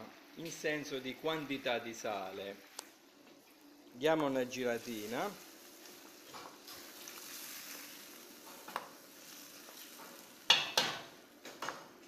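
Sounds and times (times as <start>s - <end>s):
faint sizzle: 0.0s - 12.0s
spatula stirring sauce in pan: 5.7s - 10.8s
sharp knocks against pan: 10.5s - 11.8s.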